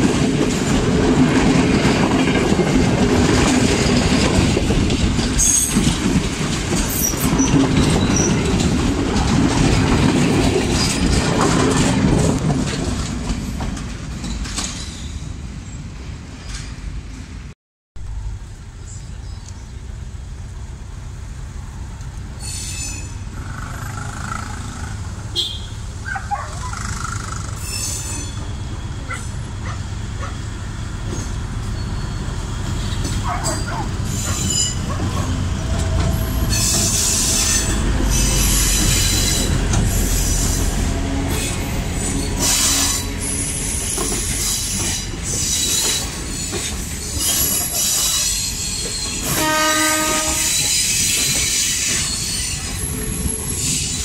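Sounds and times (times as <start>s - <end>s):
train wheels clattering and squealing: 0.0s - 17.2s, 22.3s - 25.0s, 26.1s - 54.0s
diesel engine rumble: 18.0s - 22.4s.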